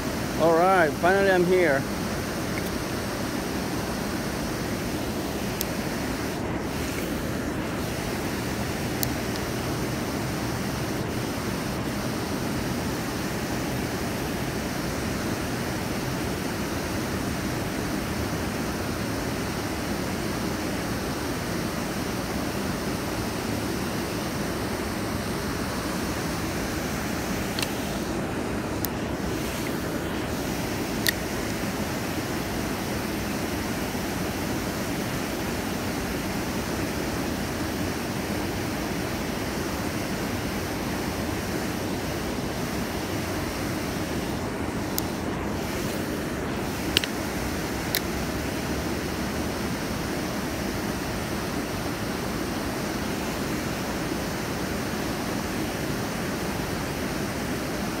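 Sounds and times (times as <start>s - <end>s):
river water pouring over dam: 0.0s - 58.0s
short clicks: 46.8s - 47.2s.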